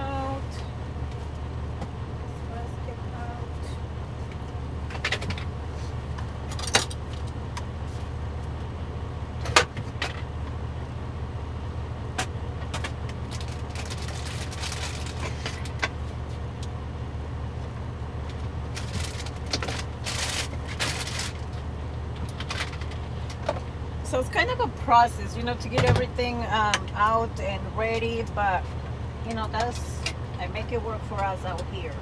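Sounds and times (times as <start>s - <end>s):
truck engine idling: 0.0s - 32.0s
cooking gear rustling and clinking: 13.3s - 15.8s, 18.7s - 21.6s.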